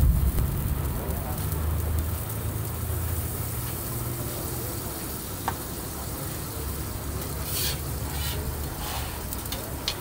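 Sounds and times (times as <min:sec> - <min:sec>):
low steady hum: 0:00.0 - 0:03.4
bun sizzling on griddle: 0:00.0 - 0:10.0.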